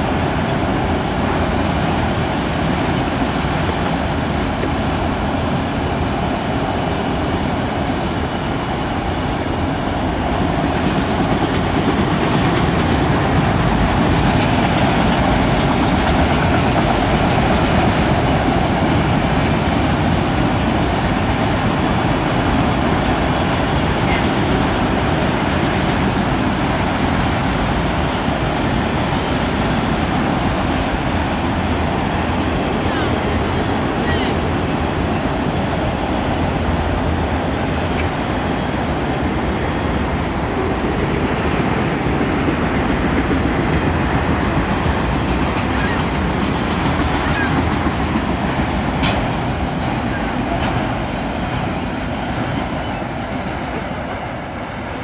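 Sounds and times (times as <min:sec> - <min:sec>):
freight train wheels on rail: 0:00.0 - 0:55.0.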